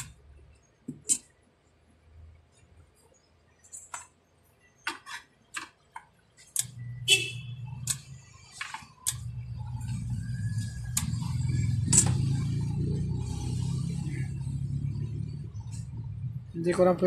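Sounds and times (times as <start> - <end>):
steady low hum: 6.5 - 17.0.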